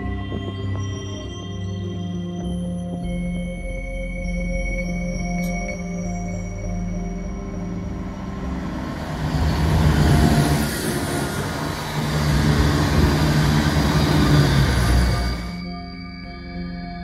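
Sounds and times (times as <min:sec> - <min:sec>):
diesel train engines droning: 0:06.2 - 0:15.7
wheels rumbling on rails: 0:07.1 - 0:15.6.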